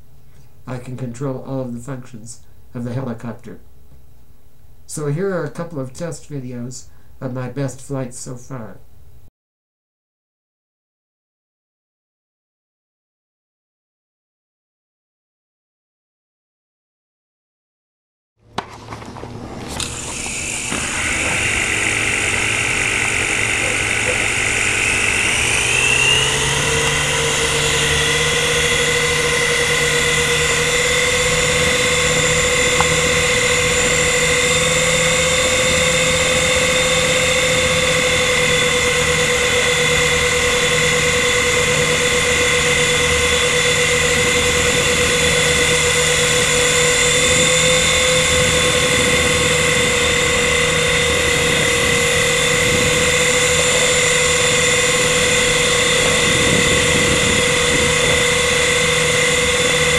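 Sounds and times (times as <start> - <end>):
small rotor motors whining: 18.4 - 59.9.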